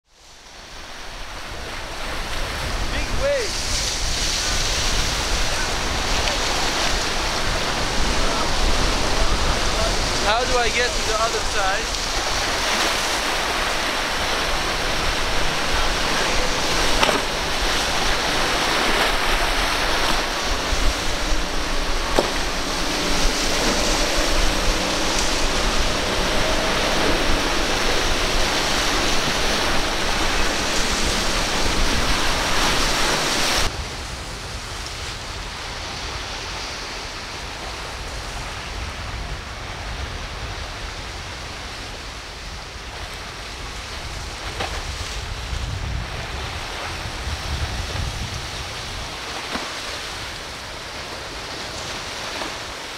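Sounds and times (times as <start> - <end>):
waves and churning boat wakes: 0.0 - 52.9
outboard motors humming: 0.2 - 33.7, 46.0 - 52.9.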